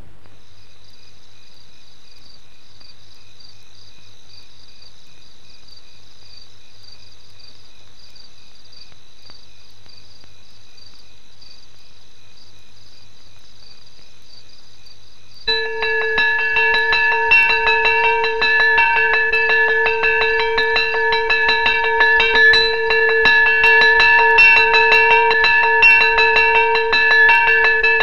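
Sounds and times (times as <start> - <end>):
crickets chirping: 0.3 - 28.0
low steady hum: 15.5 - 28.0.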